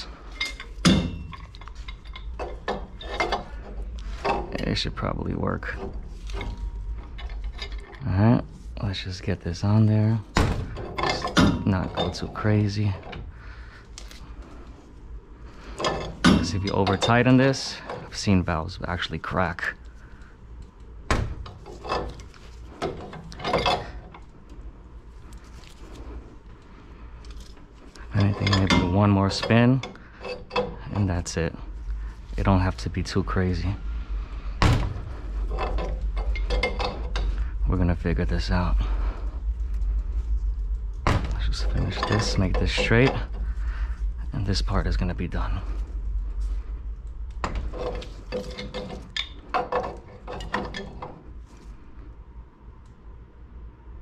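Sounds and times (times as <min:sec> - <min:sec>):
low steady hum: 0:00.0 - 0:54.0.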